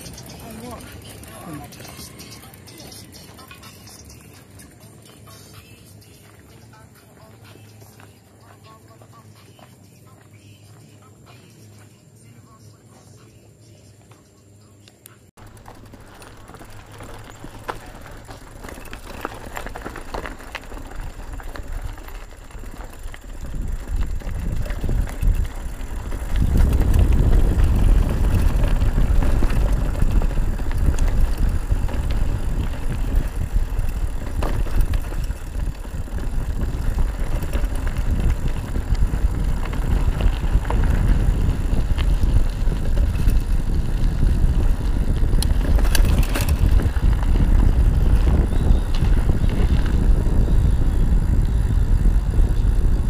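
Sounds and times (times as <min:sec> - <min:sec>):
bike rattling: 0:00.0 - 0:11.8, 0:15.4 - 0:53.0
bike tyres rolling on gravel: 0:00.0 - 0:12.6, 0:15.4 - 0:53.0
wind buffeting microphone: 0:15.4 - 0:53.0.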